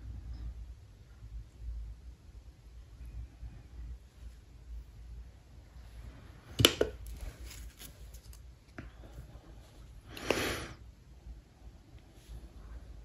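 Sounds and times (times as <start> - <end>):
rustling scrape: 7.0 - 8.5.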